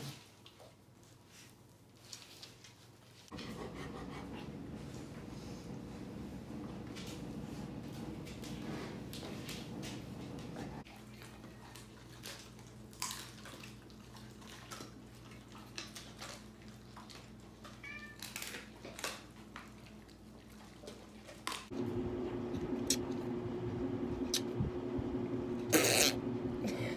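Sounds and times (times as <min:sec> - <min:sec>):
low room hum: 0:00.4 - 0:26.9.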